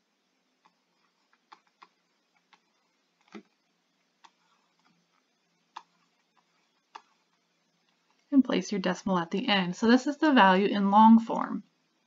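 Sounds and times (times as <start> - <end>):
stylus tapping on tablet screen: 0.6 - 3.6, 5.7 - 8.2.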